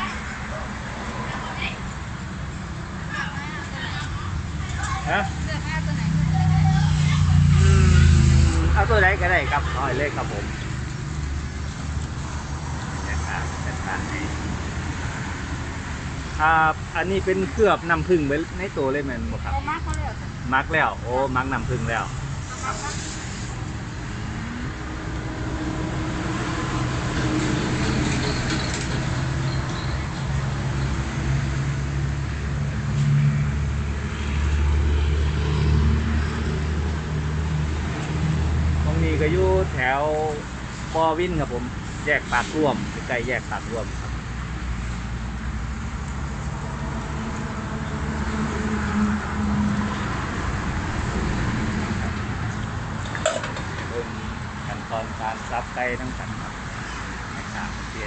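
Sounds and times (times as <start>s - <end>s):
road traffic: 0.0s - 58.0s
vehicle engine hum: 0.0s - 58.0s.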